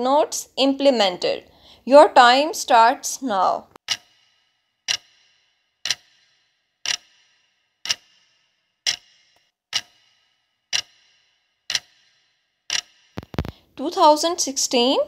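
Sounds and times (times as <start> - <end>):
clock ticking: 3.8 - 13.6.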